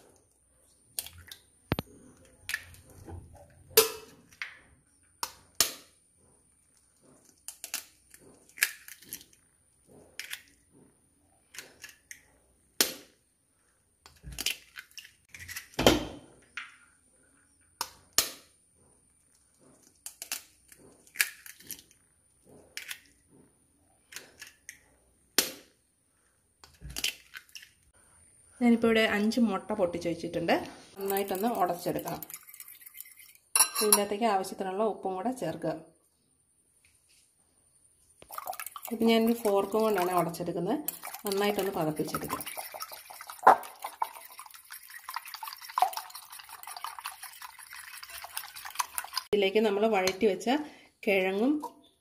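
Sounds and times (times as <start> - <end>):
eggshells cracking: 7.3 - 9.4, 19.8 - 22.0.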